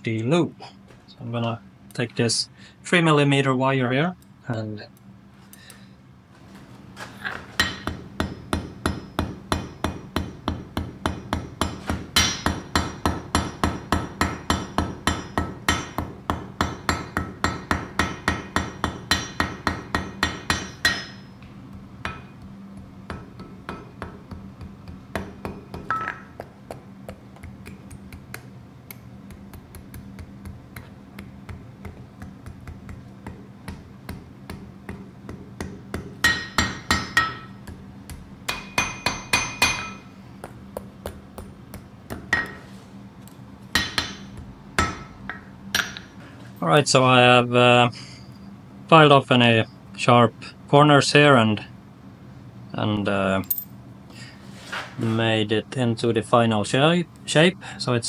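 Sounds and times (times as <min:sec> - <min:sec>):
steady low hum: 0:00.0 - 0:58.0
hammer blows on anvil: 0:07.6 - 0:21.4, 0:33.3 - 0:37.6, 0:38.5 - 0:40.1.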